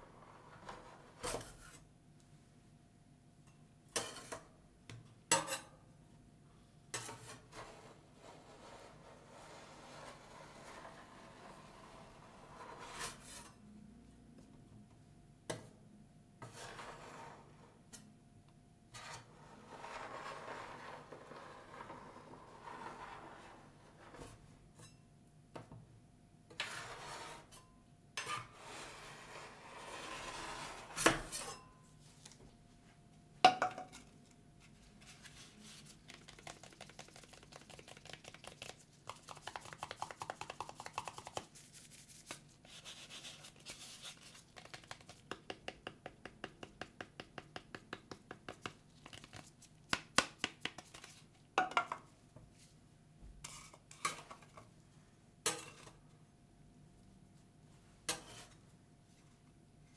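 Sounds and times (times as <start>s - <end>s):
metal spatula scraping steel plate: 19.0s - 23.7s, 26.6s - 27.6s, 28.2s - 31.7s
fingers tapping a cup: 36.3s - 41.4s.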